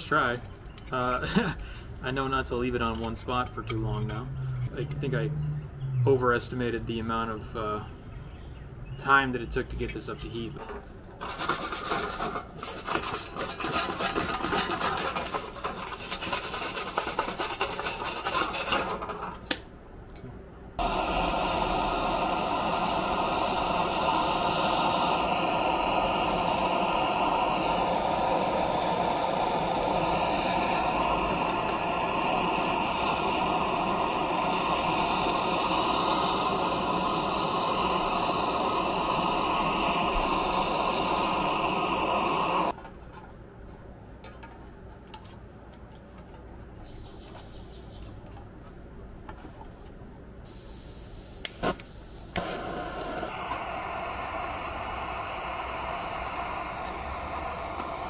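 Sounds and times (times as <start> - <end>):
brush scrubbing metal sheet: 11.2 - 19.0
propane torch hissing: 20.8 - 42.8, 50.5 - 58.0.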